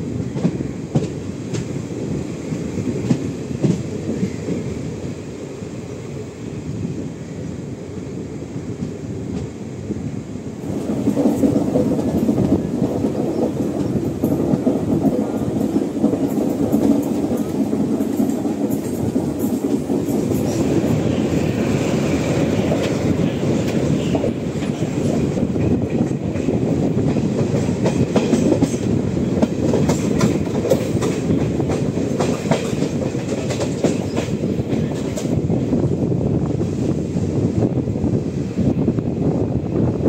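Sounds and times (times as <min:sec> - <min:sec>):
train rumbling on rails: 0:00.0 - 0:40.0
wheels clacking over rail joints: 0:10.6 - 0:35.4.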